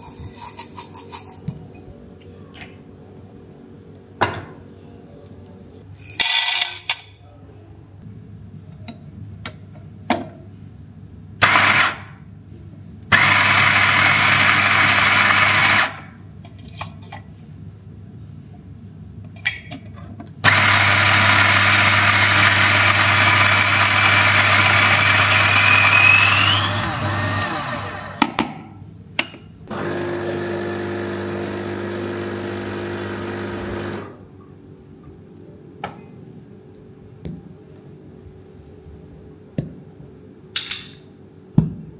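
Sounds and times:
electric coffee grinder grinding: 13.2s - 16.1s, 20.5s - 28.2s, 29.7s - 34.2s.

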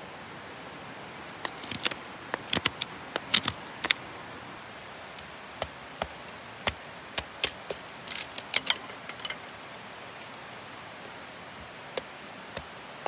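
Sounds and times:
faint steady hiss: 0.0s - 13.0s
kindling clicking and tapping: 1.4s - 4.0s.

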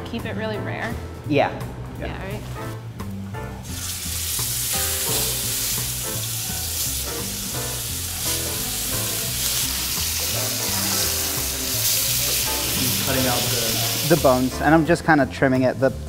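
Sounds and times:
background music with bass: 0.0s - 16.0s
meat sizzling in a skillet: 3.6s - 14.7s.

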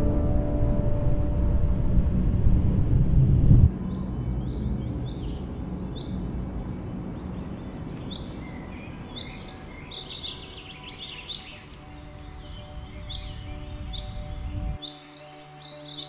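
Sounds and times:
low background rumble: 0.0s - 9.8s
birds chirping: 3.7s - 16.0s.

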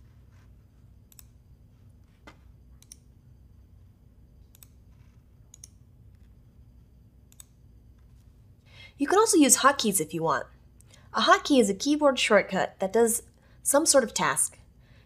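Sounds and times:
computer mouse clicking: 1.0s - 1.4s, 2.8s - 3.1s, 4.4s - 6.4s, 7.3s - 7.6s.

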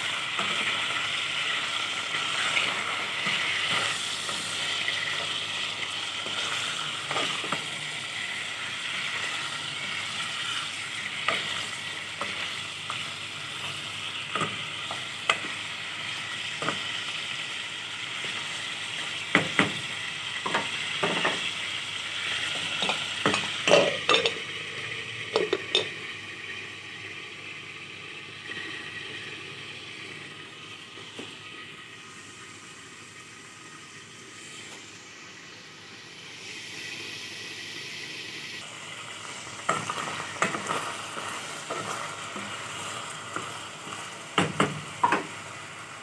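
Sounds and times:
chicken sizzling in hot oil: 0.0s - 46.0s.

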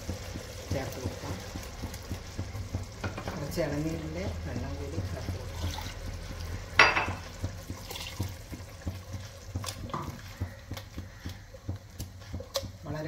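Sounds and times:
spatula stirring liquid in a pot: 0.0s - 13.0s.

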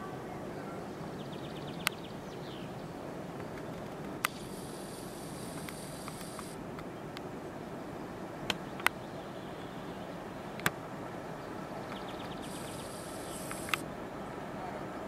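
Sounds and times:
sharp clicks: 3.6s - 6.6s, 11.9s - 13.8s
high hiss: 4.3s - 6.6s, 12.2s - 13.9s.

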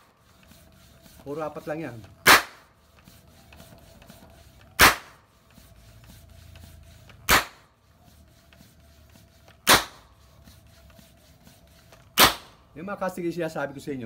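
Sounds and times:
toy gun sharp pops: 2.3s - 2.6s, 4.8s - 5.1s, 7.3s - 7.6s, 9.7s - 10.0s, 12.2s - 12.5s.

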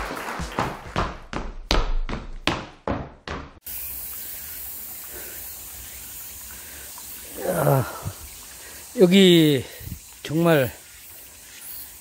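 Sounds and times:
stream trickling over rocks: 3.7s - 12.0s.

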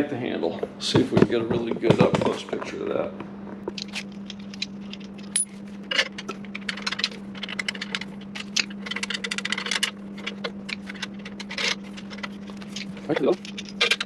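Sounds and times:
steady low hum: 0.0s - 14.0s
screw threading clicks and scrapes: 3.7s - 14.0s.

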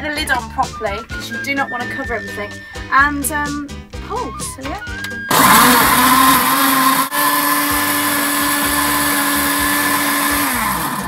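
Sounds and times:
electric blender motor: 5.0s - 11.0s.

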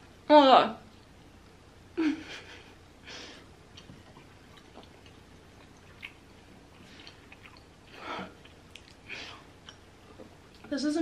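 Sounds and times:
person chewing: 3.7s - 10.7s.

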